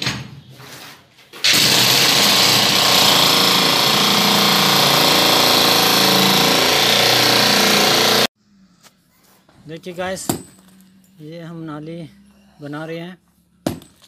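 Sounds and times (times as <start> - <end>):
demolition hammer breaking concrete: 1.4 - 8.3.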